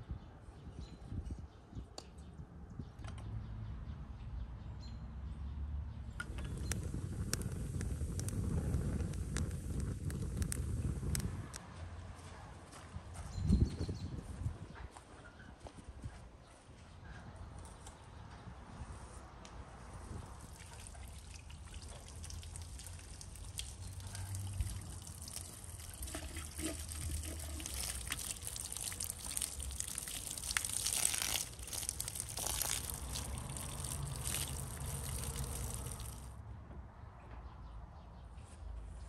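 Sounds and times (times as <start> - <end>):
water pouring and trickling: 20.1 - 36.4.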